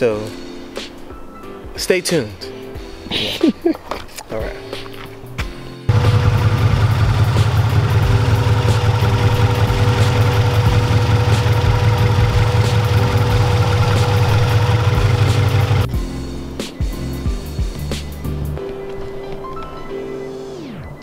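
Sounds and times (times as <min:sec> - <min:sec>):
car engine idling: 0:05.9 - 0:15.9.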